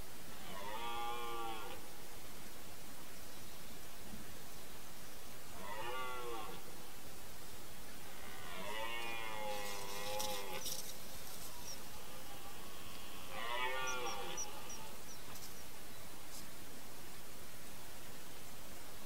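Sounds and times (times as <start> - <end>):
red deer stag roaring: 8.2 - 10.8, 11.9 - 15.0.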